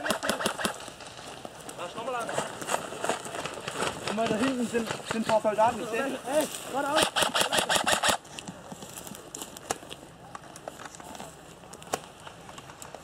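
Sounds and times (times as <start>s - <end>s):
airsoft rifle full-auto burst: 0.0s - 0.8s, 6.9s - 8.2s
twigs crackling: 0.0s - 13.0s
footsteps crunching on forest floor: 0.8s - 7.0s.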